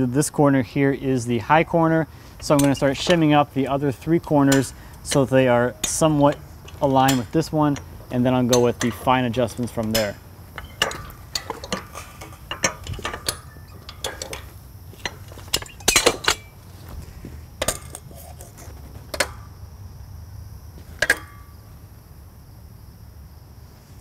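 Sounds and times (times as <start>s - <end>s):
tools clinking on steel beams: 1.4s - 19.6s, 20.8s - 21.7s
jack ratchet pumping: 2.1s - 19.5s.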